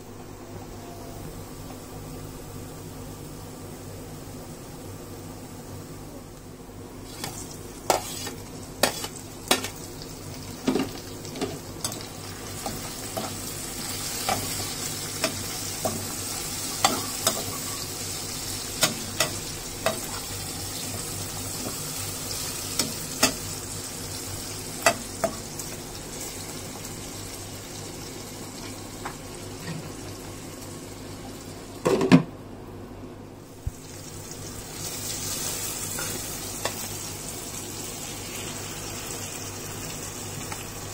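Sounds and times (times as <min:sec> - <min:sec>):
food sizzling in a wok: 0:06.8 - 0:31.8, 0:33.4 - 0:40.9.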